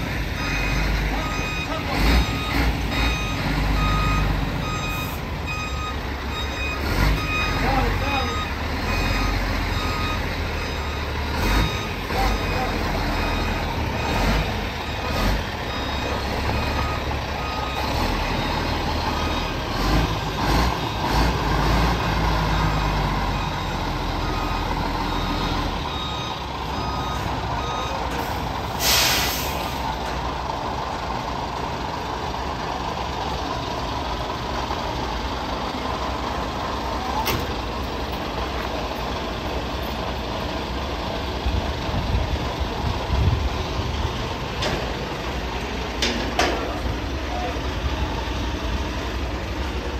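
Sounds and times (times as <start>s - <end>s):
truck engine running: 0.0s - 49.9s
reversing alarm beeping: 0.2s - 29.8s
air brakes hiss: 28.2s - 29.9s.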